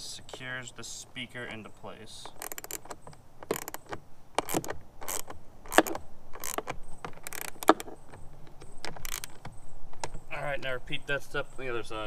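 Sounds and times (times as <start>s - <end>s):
hand ratchet clicking: 2.4s - 8.0s, 8.9s - 9.4s.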